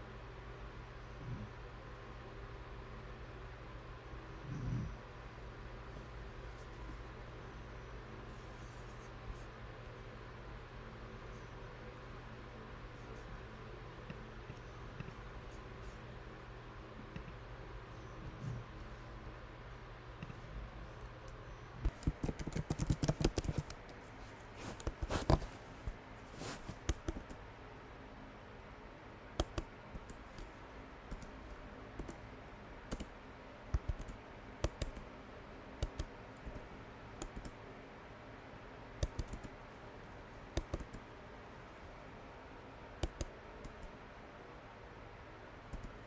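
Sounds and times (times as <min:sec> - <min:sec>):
keyboard keys clicking: 0:21.3 - 0:24.0, 0:32.9 - 0:33.1, 0:33.7 - 0:35.0, 0:35.8 - 0:36.6, 0:37.2 - 0:37.6, 0:39.0 - 0:39.5, 0:43.0 - 0:43.9.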